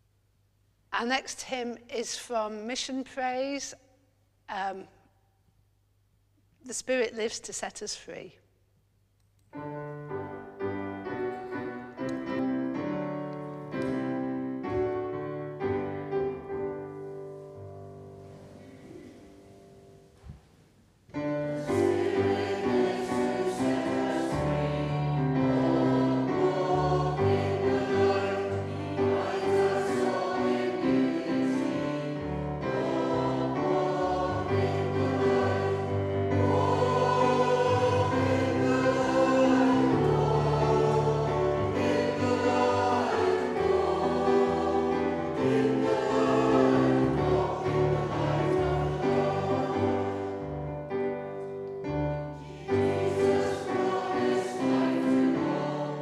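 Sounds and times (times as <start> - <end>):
congregation singing a hymn: 21.3 - 51.6, 52.2 - 56.0.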